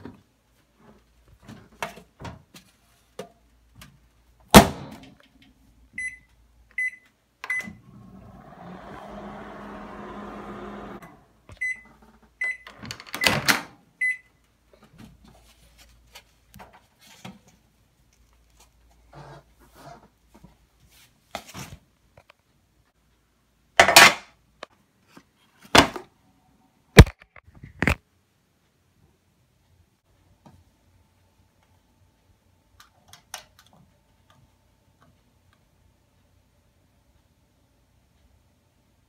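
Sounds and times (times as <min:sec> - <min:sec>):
microwave oven humming: 0:07.5 - 0:11.9.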